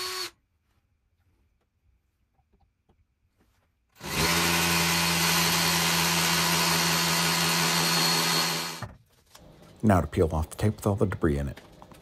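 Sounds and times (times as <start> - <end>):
hammer drill boring into masonry: 0.0 - 0.4, 4.0 - 8.8.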